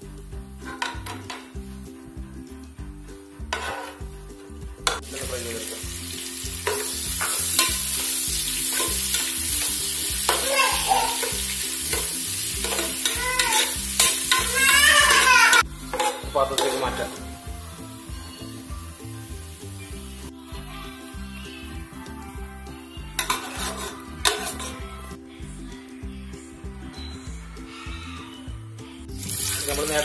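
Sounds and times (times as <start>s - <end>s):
metal spoon stirring and scraping: 0.7s - 1.6s, 3.5s - 4.1s, 4.9s - 17.2s, 23.2s - 24.9s
onions sizzling in oil: 5.0s - 20.3s, 23.2s - 24.8s, 29.2s - 30.0s.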